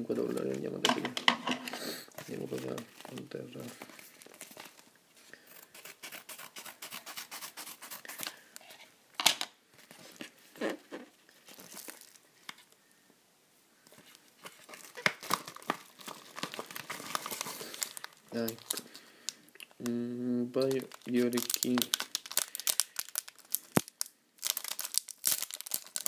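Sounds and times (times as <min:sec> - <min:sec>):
paper crinkling: 0:02.2 - 0:08.5, 0:09.8 - 0:12.7, 0:13.9 - 0:19.1, 0:20.7 - 0:26.0.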